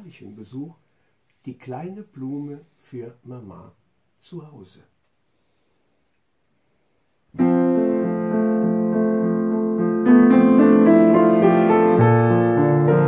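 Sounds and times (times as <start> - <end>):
piano chords: 7.4 - 13.0.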